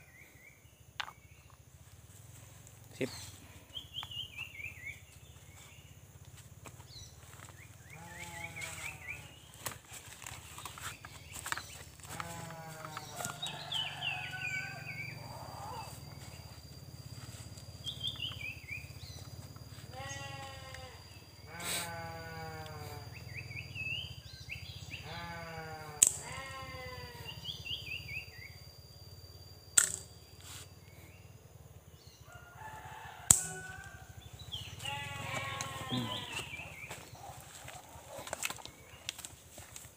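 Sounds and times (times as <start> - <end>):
animal calls falling in pitch: 12.0 - 16.2.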